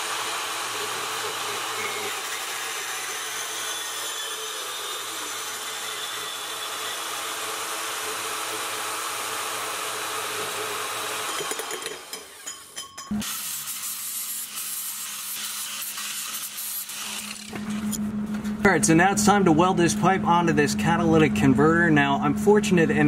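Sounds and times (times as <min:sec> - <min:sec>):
band saw cutting metal pipe: 0:00.0 - 0:18.0.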